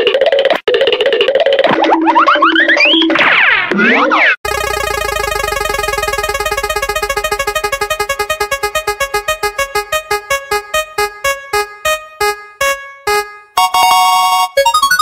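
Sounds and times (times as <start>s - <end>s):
electronic spinning wheel notes: 4.0s - 15.0s.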